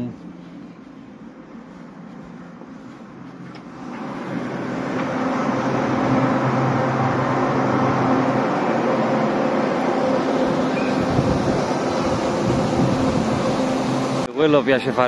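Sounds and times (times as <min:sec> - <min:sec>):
ship machinery rushing and humming: 0:03.6 - 0:15.0.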